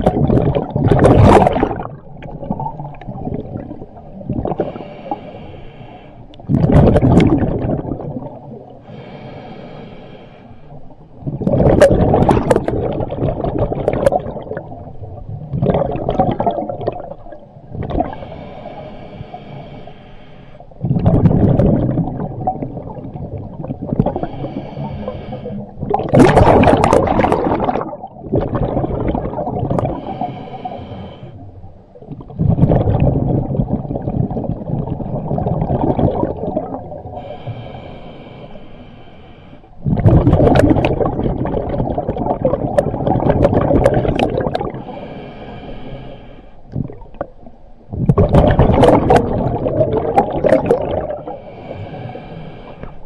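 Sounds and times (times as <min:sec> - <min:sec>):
diver exhaling bubbles: 0:00.0 - 0:05.4, 0:06.4 - 0:09.2, 0:11.2 - 0:18.6, 0:20.8 - 0:31.3, 0:32.1 - 0:37.6, 0:39.8 - 0:53.0
diver inhaling through regulator: 0:04.5 - 0:06.4, 0:08.8 - 0:10.9, 0:18.0 - 0:20.8, 0:24.0 - 0:25.8, 0:29.8 - 0:31.5, 0:37.1 - 0:40.0, 0:43.7 - 0:46.7, 0:50.3 - 0:53.0.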